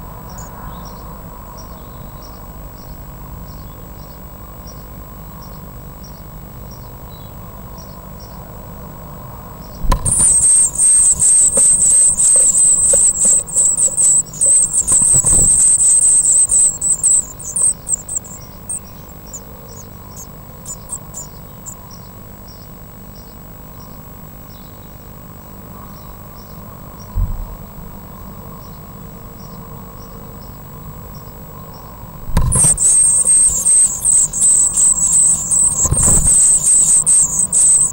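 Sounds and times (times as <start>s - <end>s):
soft bird chirps: 9.7s - 23.4s, 32.3s - 37.9s
nestlings begging calls: 9.8s - 22.1s, 32.3s - 37.9s.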